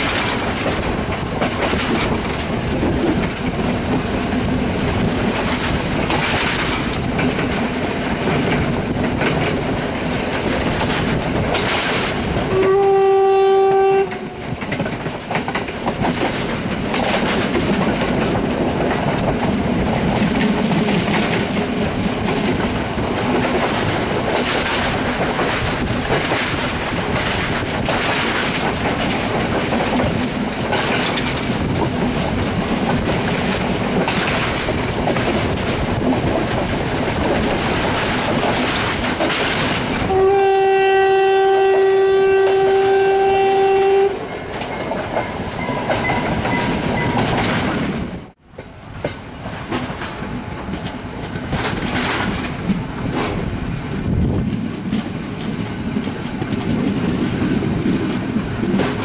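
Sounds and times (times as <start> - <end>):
wheels clicking over rail joints: 0.0 - 12.8, 13.7 - 59.0
train rumble: 0.0 - 59.0
train horn blast: 12.4 - 14.5, 40.0 - 44.3.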